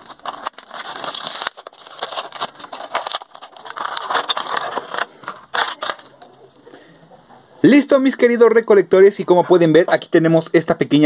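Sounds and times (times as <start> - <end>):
plastic blister crinkling: 0.0 - 6.6.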